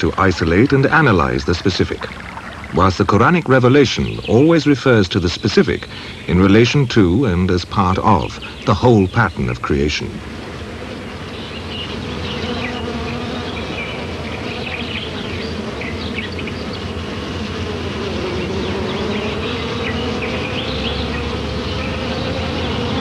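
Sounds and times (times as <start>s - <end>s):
insect wings buzzing: 0.0s - 4.6s, 9.6s - 23.0s.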